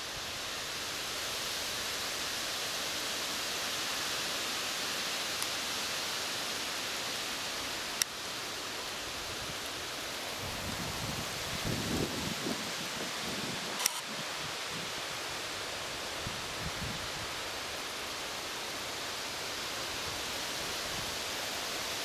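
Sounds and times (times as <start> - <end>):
wind in leaves and grass: 0.0 - 22.0
sharp click: 13.8 - 14.1.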